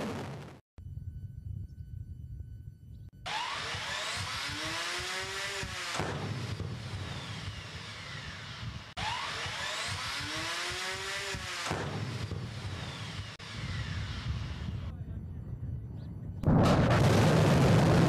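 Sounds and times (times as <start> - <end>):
low rumble: 0.0 - 3.3, 12.0 - 18.0
missile launch roar: 16.4 - 18.0.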